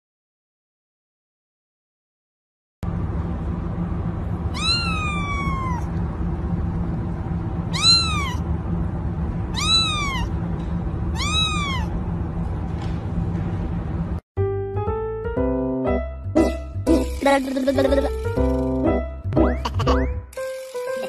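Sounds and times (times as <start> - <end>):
steady low hum: 2.8 - 14.2
kitten meowing: 4.5 - 5.9, 7.7 - 8.4, 9.5 - 10.3, 11.1 - 11.9.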